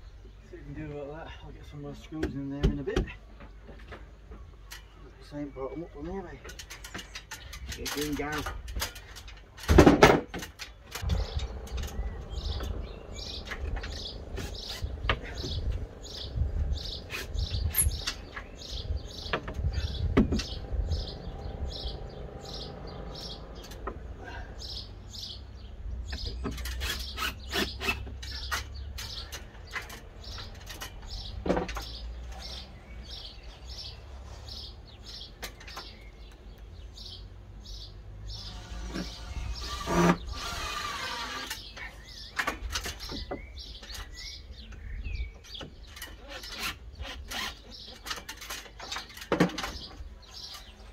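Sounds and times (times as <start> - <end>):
small bird chirping: 10.7 - 23.9, 24.5 - 50.9
steady low rumble: 11.0 - 24.2.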